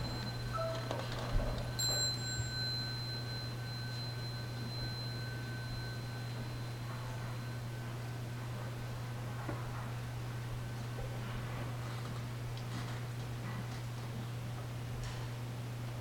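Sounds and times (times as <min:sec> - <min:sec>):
metal bell ringing: 0:00.0 - 0:09.2
steady low hum: 0:00.0 - 0:16.0.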